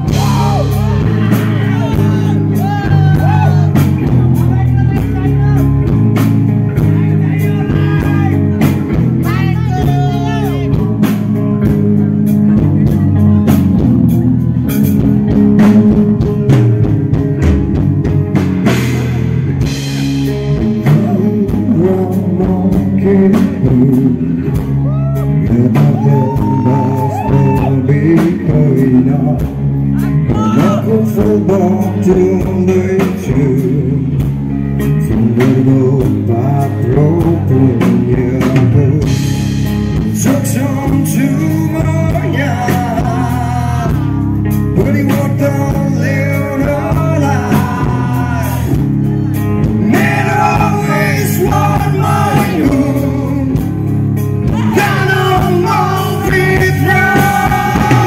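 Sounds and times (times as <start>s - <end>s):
lead vocal singing: 0.0s - 5.7s, 19.6s - 34.2s, 35.0s - 39.4s, 40.0s - 58.0s
bass guitar: 0.0s - 58.0s
drum kit: 0.0s - 58.0s
electric guitars: 0.0s - 58.0s.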